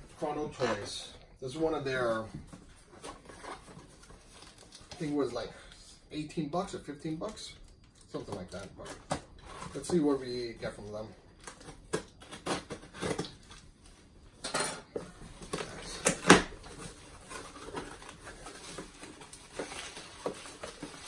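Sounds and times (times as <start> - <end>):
paper bag crinkling and rustling: 15.3 - 21.0.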